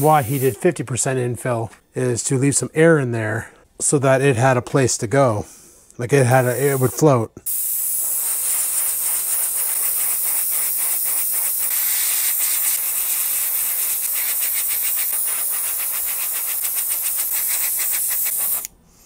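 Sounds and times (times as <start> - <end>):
airbrush hissing: 0.0 - 0.7, 6.3 - 18.8.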